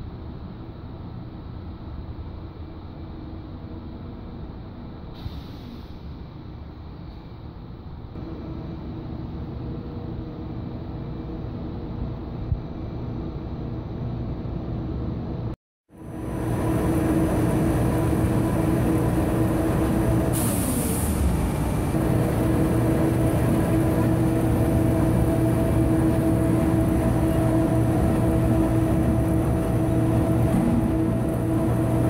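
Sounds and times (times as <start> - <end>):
short hiss: 5.2 - 6.2
machine hum with pitched drone: 8.1 - 32.0.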